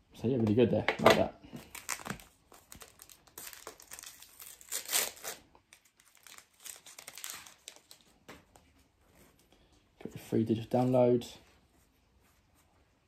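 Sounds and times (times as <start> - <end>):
card pack wrapper tearing and crinkling: 1.6 - 8.2.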